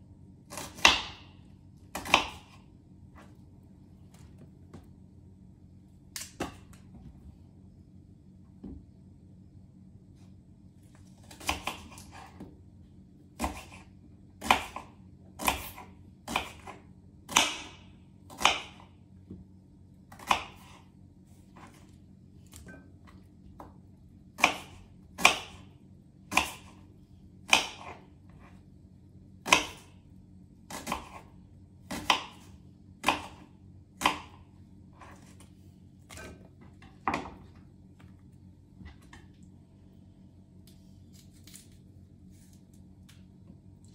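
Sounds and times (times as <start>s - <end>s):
knife cutting onion on board: 0.4s - 3.4s, 6.1s - 7.0s, 11.2s - 12.6s, 13.3s - 18.9s, 20.0s - 22.8s, 23.5s - 28.7s, 29.4s - 29.9s, 30.6s - 37.4s.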